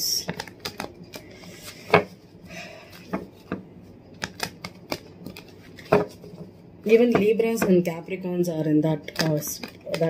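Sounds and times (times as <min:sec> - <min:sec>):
cards being shuffled: 0:00.2 - 0:02.3, 0:02.9 - 0:06.5, 0:09.0 - 0:10.0.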